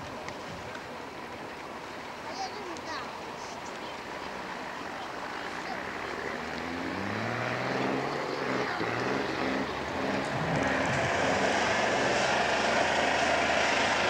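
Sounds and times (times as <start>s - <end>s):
diesel engine revving hard: 5.5s - 14.0s.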